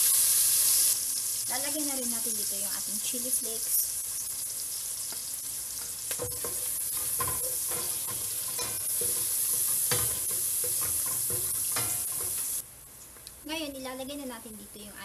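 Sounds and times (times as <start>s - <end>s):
onions sizzling in oil: 0.0s - 12.7s
spatula scraping a metal pot: 6.2s - 12.6s.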